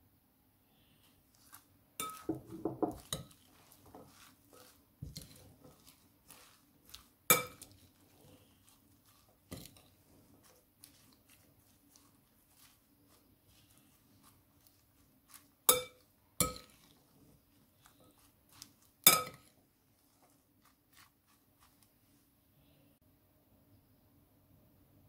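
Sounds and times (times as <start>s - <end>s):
cutlery clinking in glass bowl: 2.0s - 7.9s, 15.7s - 16.9s, 19.0s - 19.5s.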